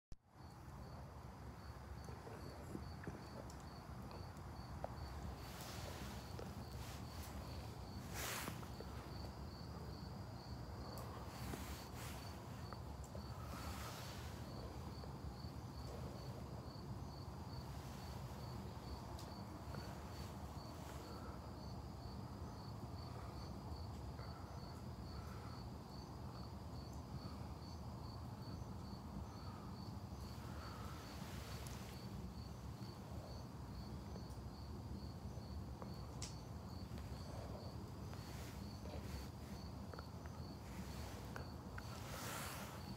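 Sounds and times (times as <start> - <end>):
wood fire crackling: 2.0 - 17.0, 30.3 - 33.2.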